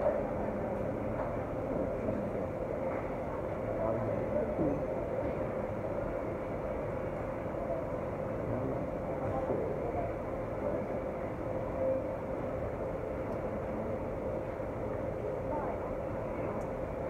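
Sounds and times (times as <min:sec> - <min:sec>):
indoor background hum and hiss: 0:00.0 - 0:17.0
faint steady tone: 0:07.1 - 0:17.0.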